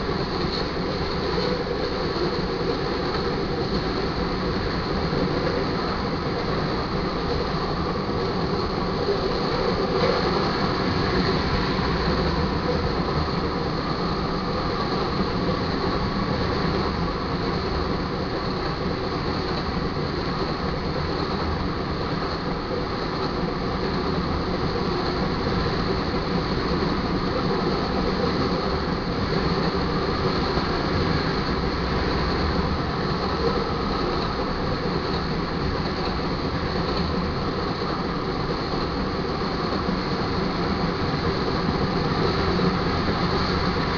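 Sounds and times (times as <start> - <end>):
freight train wheels rumbling on rails: 0.0 - 43.9.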